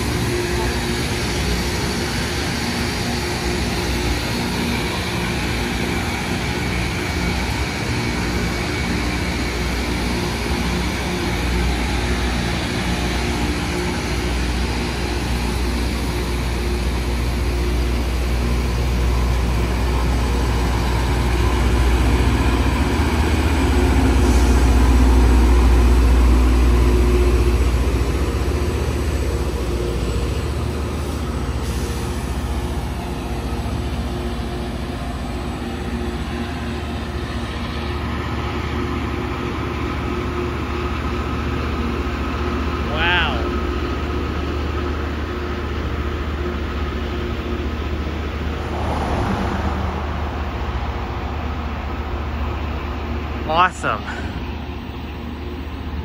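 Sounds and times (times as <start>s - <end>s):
machinery hiss: 0.0s - 38.0s
diesel engines rumbling: 0.0s - 56.0s.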